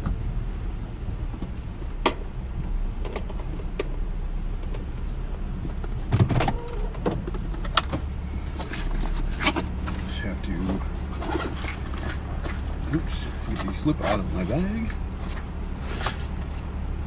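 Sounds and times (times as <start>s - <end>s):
car engine idling: 0.0s - 17.0s
sharp clicks and knocks: 5.6s - 10.0s.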